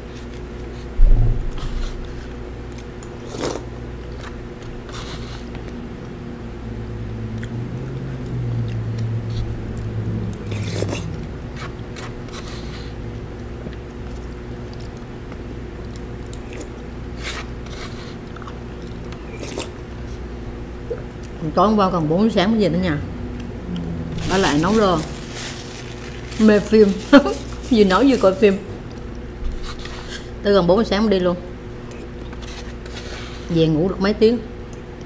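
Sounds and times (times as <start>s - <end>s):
person chewing: 0.0s - 5.8s, 7.3s - 20.2s, 23.3s - 26.4s
low room hum: 0.0s - 35.0s.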